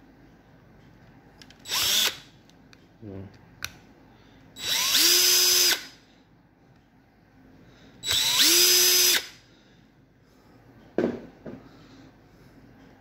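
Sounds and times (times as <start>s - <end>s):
cordless drill driving screws: 1.7s - 2.2s, 4.6s - 5.9s, 8.0s - 9.3s.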